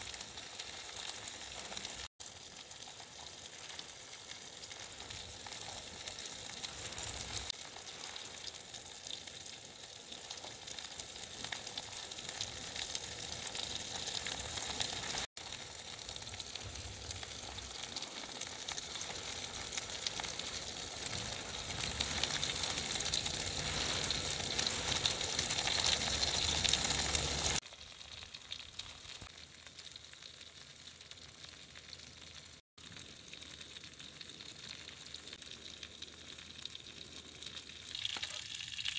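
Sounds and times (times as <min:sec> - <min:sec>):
meat sizzling on a griddle pan: 0:00.0 - 0:32.2.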